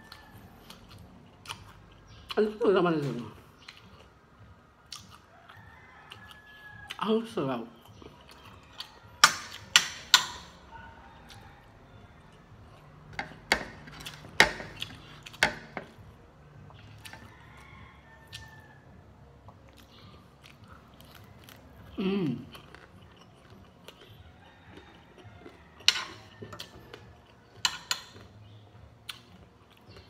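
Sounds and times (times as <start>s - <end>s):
wet chewing: 0.0s - 2.4s, 3.4s - 7.0s, 7.8s - 10.6s, 19.4s - 30.0s.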